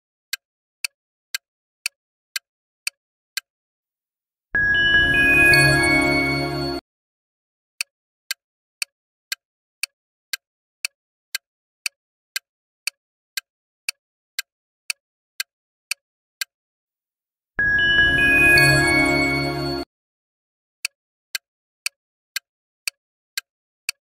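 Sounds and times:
bright chime jingle: 4.6 - 6.8, 17.6 - 19.8
clock-like timer ticks: 9.8 - 15.0.

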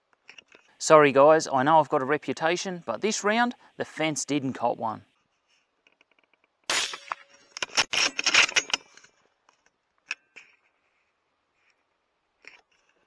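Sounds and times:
rifle shot: 6.7 - 8.6.

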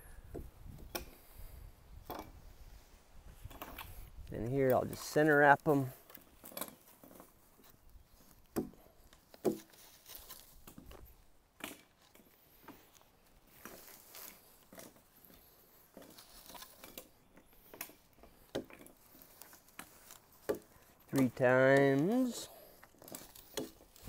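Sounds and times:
rope rubbing on wood: 4.9 - 11.1, 12.0 - 24.0.

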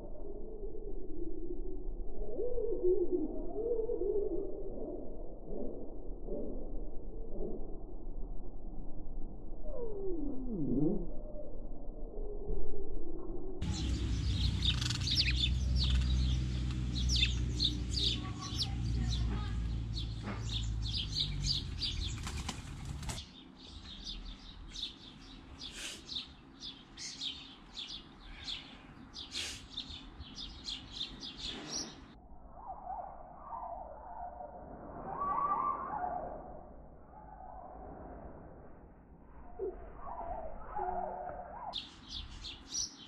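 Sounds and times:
low rumble: 5.1 - 23.2
sparrows chirping: 13.6 - 32.2, 41.6 - 43.0
wings flapping: 21.6 - 23.3.

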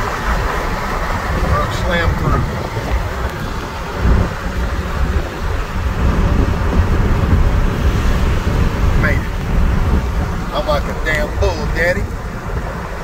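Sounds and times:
car cabin road rumble: 0.0 - 13.0.

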